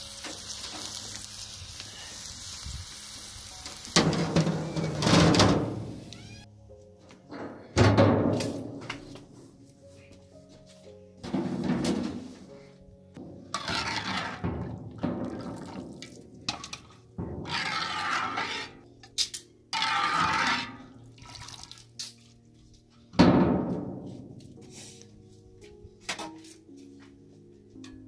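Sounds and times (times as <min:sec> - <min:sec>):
broth splashing and pouring: 0:15.2 - 0:17.8, 0:21.1 - 0:22.0.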